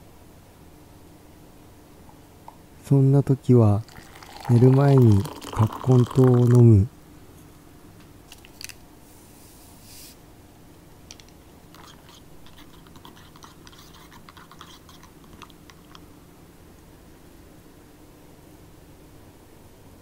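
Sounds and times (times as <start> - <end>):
stirrer clicking in ceramic cup: 11.1 - 16.0.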